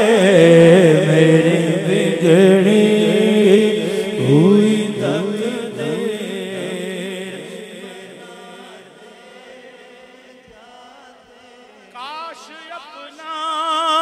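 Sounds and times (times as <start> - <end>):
man singing unaccompanied: 0.0 - 9.9.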